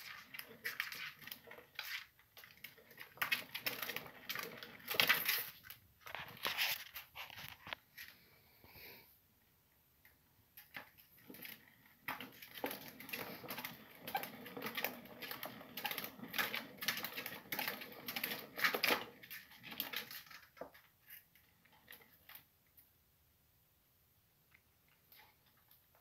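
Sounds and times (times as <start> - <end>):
exercise wheel clicking and clattering: 0.0 - 6.3, 10.6 - 22.5.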